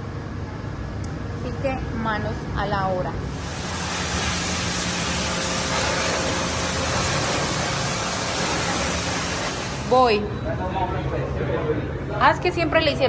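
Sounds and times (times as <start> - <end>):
pressure washer spraying water: 3.2 - 10.3
low motor hum: 3.2 - 10.5.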